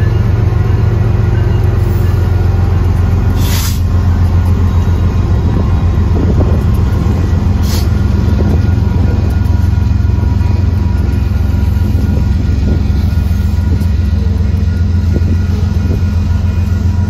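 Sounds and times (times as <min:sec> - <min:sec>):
freight train rumbling past: 0:00.0 - 0:17.0
brief hisses: 0:03.4 - 0:03.8.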